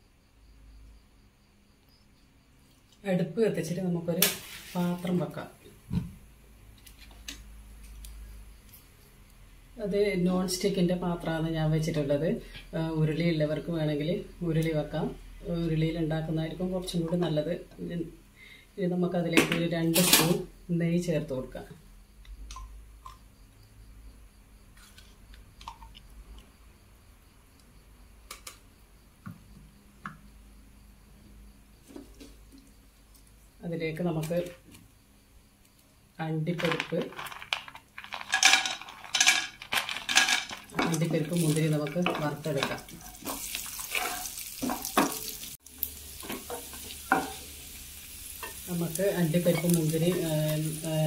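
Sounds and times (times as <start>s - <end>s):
nuts sizzling in a pan: 4.2s - 5.3s, 19.4s - 20.5s, 35.7s - 51.0s
spatula scraping a pan: 41.8s - 45.3s.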